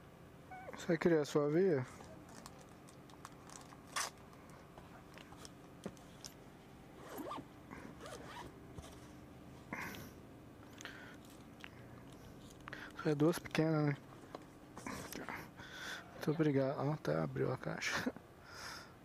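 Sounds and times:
zipper pulled open: 0:07.0 - 0:09.0.

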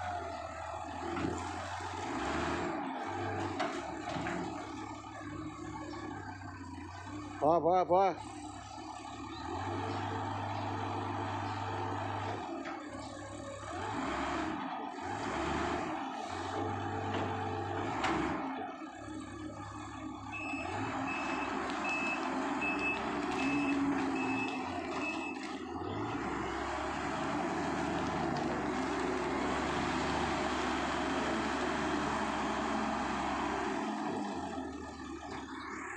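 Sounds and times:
wheel loader diesel engine: 0:00.0 - 0:35.9
reversing alarm beeps: 0:20.3 - 0:25.5.

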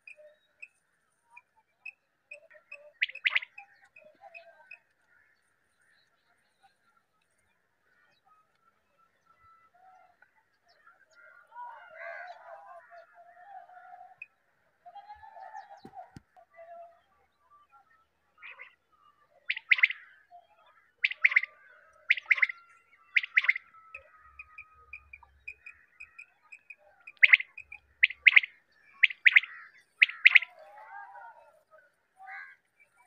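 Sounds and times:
quail whistled calls: 0:02.7 - 0:03.6, 0:19.4 - 0:20.1, 0:21.0 - 0:30.8.

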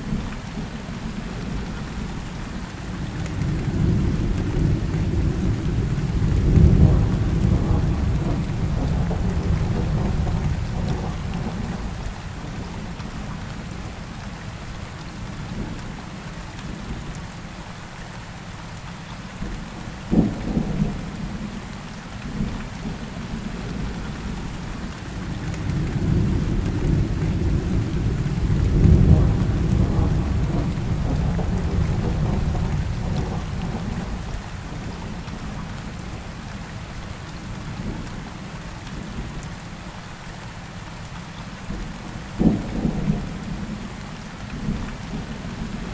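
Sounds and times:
steady rain: 0:00.0 - 0:45.9
rolling thunder: 0:03.8 - 0:12.0, 0:25.4 - 0:35.2.

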